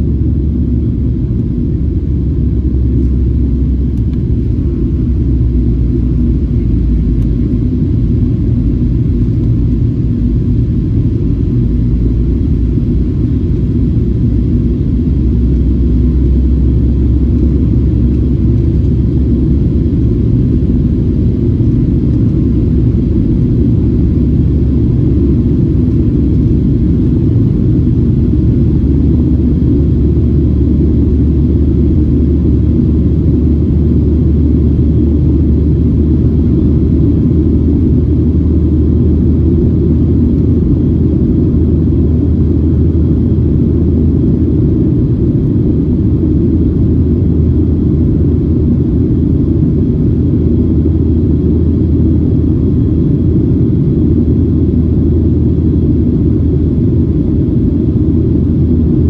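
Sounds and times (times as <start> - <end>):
airplane cabin engine rumble: 0.0 - 59.0.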